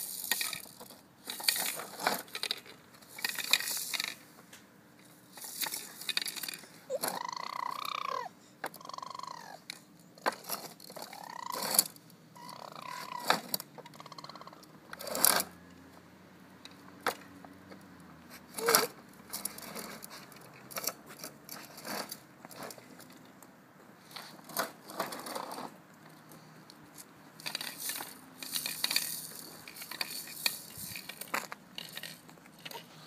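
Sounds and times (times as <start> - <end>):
toy wheels clicking on asphalt: 0.0 - 4.2, 5.2 - 15.6, 18.5 - 23.2, 24.1 - 33.0
toddler squealing and babbling: 6.9 - 9.7, 11.0 - 11.6, 12.4 - 13.4.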